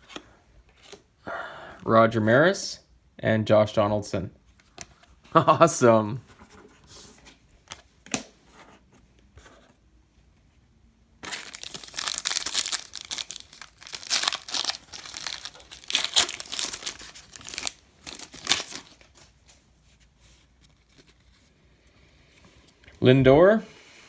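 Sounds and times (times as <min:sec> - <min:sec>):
card pack wrapper tearing: 0:11.2 - 0:19.1.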